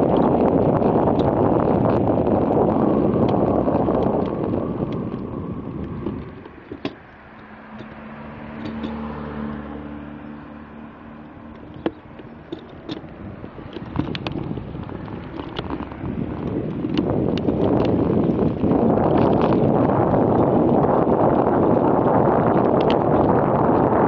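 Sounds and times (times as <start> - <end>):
vehicle engine humming: 0.0 - 24.0
wind buffeting microphone: 0.0 - 24.0.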